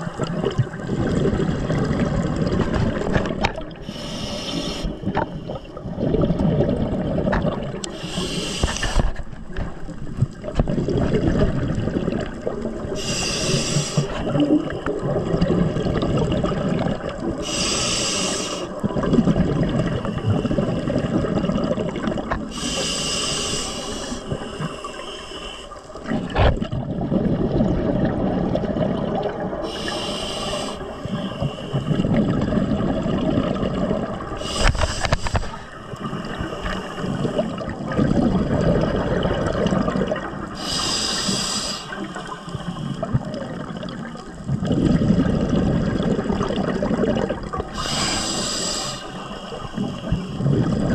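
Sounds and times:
bubbling exhaled air: 0.0s - 50.9s
hissing inhales through regulator: 3.8s - 5.7s, 7.8s - 9.3s, 12.9s - 14.9s, 17.4s - 18.8s, 22.5s - 26.0s, 29.6s - 32.2s, 34.3s - 37.8s, 40.5s - 43.3s, 47.7s - 50.9s.

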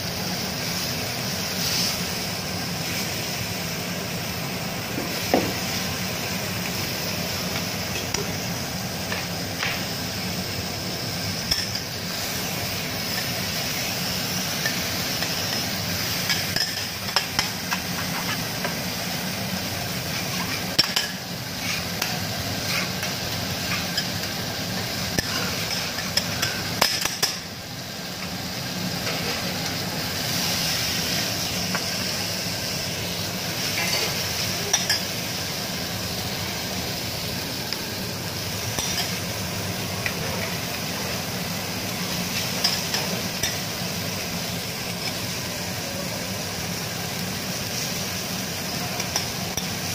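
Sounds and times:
food sizzling on a griddle: 0.0s - 49.9s.

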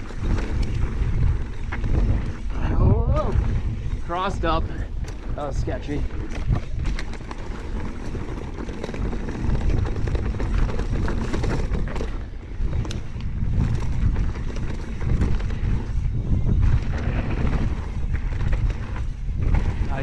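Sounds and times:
bike rattling over bumps: 0.0s - 20.0s
tyres rumbling over dirt: 0.0s - 20.0s
wind buffeting microphone: 0.0s - 20.0s.

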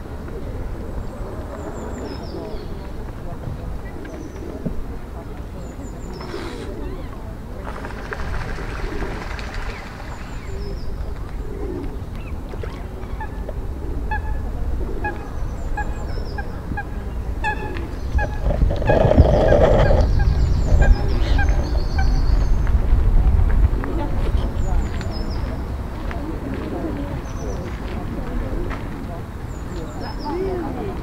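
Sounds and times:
geese honking: 14.1s - 22.1s.

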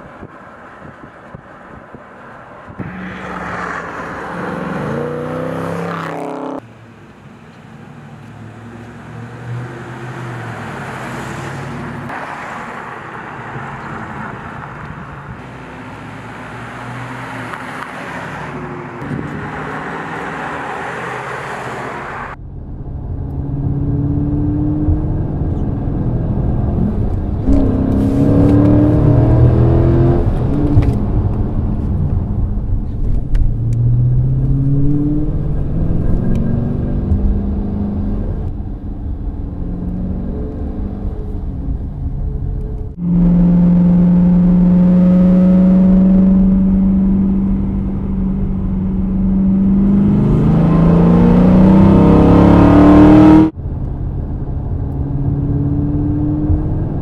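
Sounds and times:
car engine rumble: 0.0s - 57.0s
road noise: 0.0s - 57.0s
car engine revving hard: 2.8s - 6.6s, 26.0s - 31.0s, 43.0s - 53.6s, 55.3s - 57.0s.

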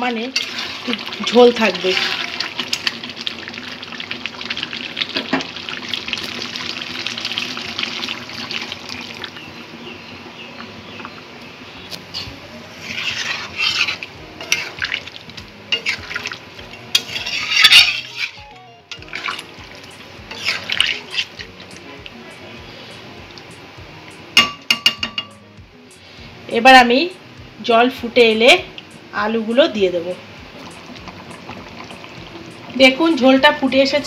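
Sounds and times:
curry sizzling in a pan: 0.0s - 34.0s
metal spoon scraping a pan: 0.3s - 3.0s, 12.1s - 19.5s, 20.2s - 21.8s
water splashing into a pan: 0.4s - 9.5s, 12.9s - 18.2s, 19.0s - 21.6s.

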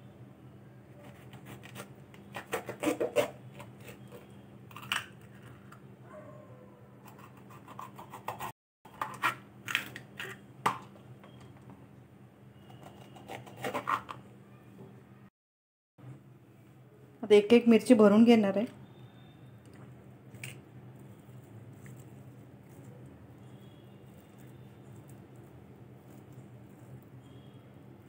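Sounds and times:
knife cutting bell peppers: 1.0s - 4.3s, 12.8s - 14.2s.

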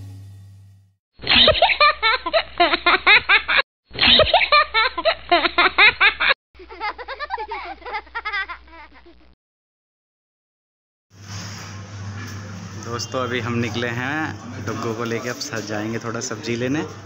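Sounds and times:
small child laughing: 1.2s - 9.4s.

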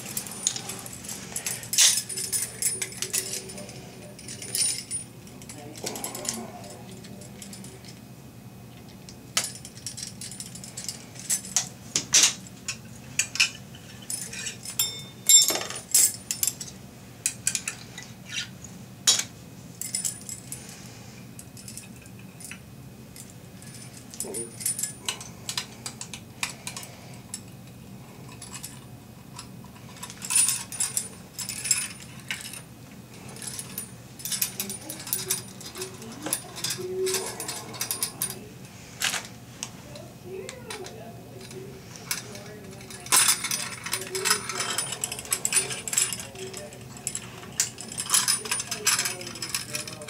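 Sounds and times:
metal clinks and rattles: 0.0s - 8.0s, 9.4s - 18.5s, 19.1s - 20.7s, 21.4s - 22.6s, 23.2s - 27.6s, 28.2s - 39.4s, 40.3s - 50.0s.

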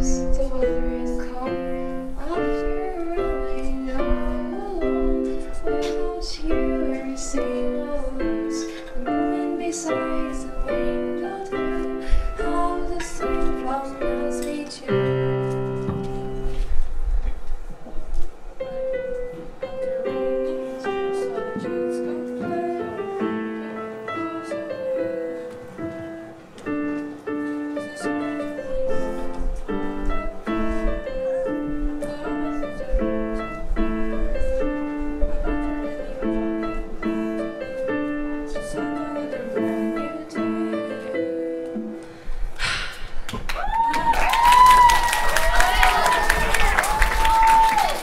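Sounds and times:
piano playing broken chords: 0.0s - 42.6s
applause: 43.3s - 48.0s.

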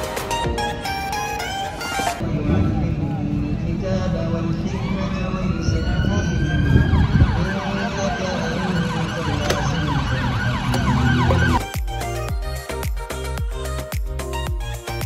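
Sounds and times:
busy road traffic: 0.0s - 12.2s
emergency vehicle siren: 0.9s - 11.6s.

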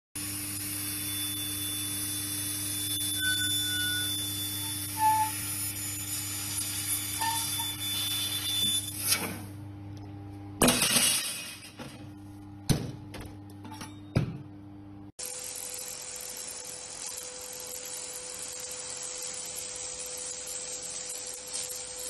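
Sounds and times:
laser welder hum and hiss: 0.2s - 9.6s, 15.2s - 22.0s.

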